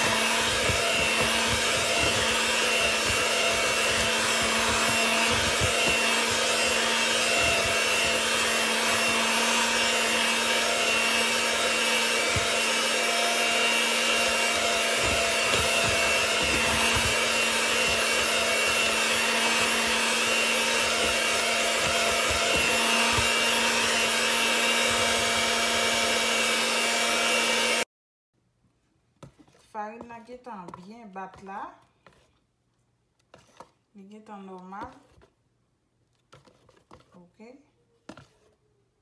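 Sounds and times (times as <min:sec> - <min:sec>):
electric mixer whipping batter: 0:00.0 - 0:27.9.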